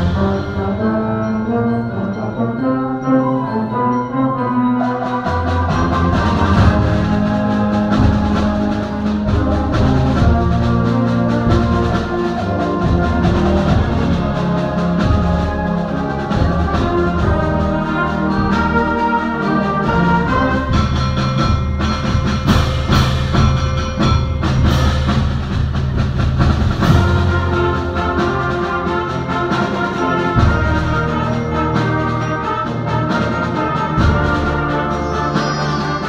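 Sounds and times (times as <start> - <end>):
concert band playing: 0.0 - 36.0
sharp percussion strikes: 0.0 - 36.0.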